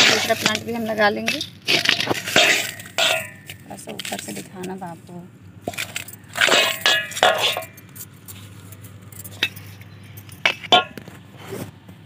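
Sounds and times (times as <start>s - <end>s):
metal trowel scraping metal basin: 0.0s - 4.4s, 5.7s - 8.1s.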